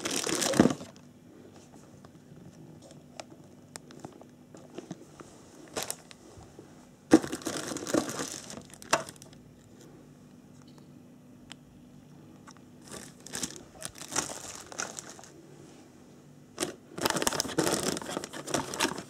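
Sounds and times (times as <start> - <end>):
plastic bags crinkling: 0.0 - 1.0, 5.6 - 6.2, 7.1 - 9.4, 12.8 - 15.4, 16.6 - 19.0.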